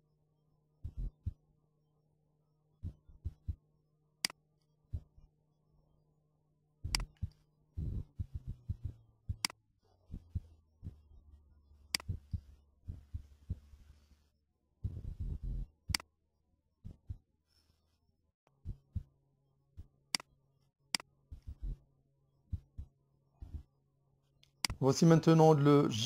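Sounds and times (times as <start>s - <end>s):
soft low thumps: 0.8s - 1.4s, 2.8s - 3.6s, 6.8s - 9.5s, 12.0s - 13.9s, 14.8s - 16.0s, 18.6s - 19.1s, 22.5s - 23.7s
steady low hum: 0.8s - 1.5s, 6.8s - 16.0s
computer mouse clicking: 12.0s - 12.5s.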